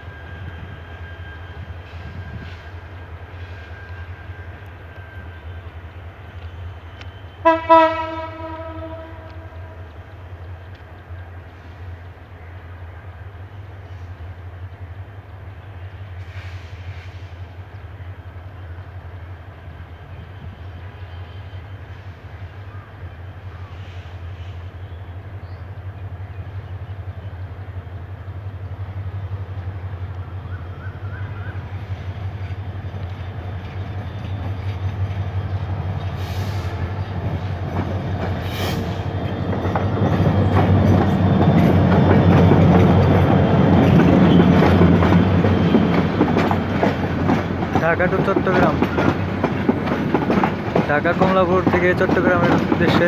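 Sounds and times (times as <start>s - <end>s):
locomotive engine drone: 0.0s - 53.0s.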